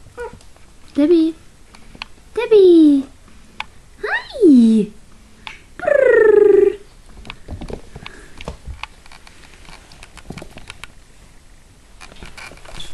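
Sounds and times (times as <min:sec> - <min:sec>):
high voice falling in pitch: 0:05.8 - 0:06.9.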